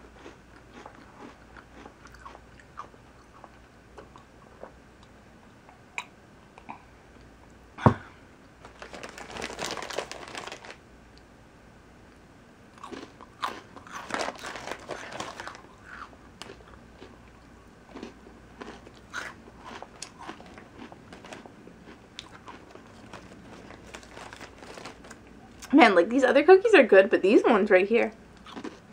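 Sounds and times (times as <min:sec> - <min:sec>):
cookies being crunched and chewed: 0:00.0 - 0:04.7, 0:08.6 - 0:10.8, 0:12.7 - 0:25.7, 0:28.4 - 0:28.9.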